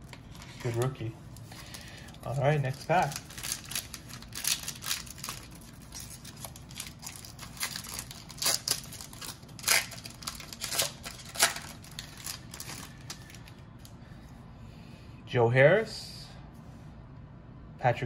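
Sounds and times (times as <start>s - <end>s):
foil wrapper crinkling and tearing: 0.0s - 13.9s.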